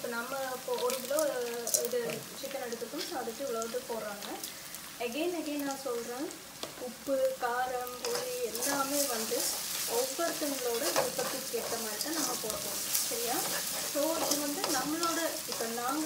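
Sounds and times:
oil sizzling: 0:00.0 - 0:16.0
spatula scraping metal wok: 0:08.0 - 0:16.0.

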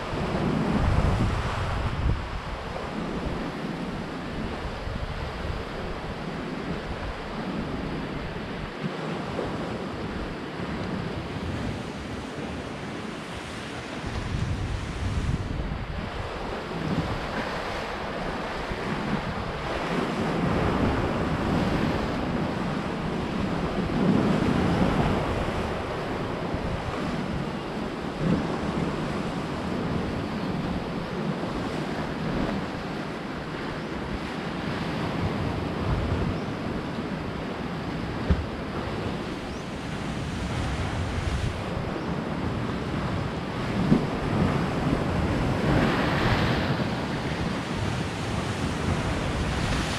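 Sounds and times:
waves washing onto shore: 0:00.0 - 0:49.9
wind buffeting microphone: 0:00.0 - 0:49.9.

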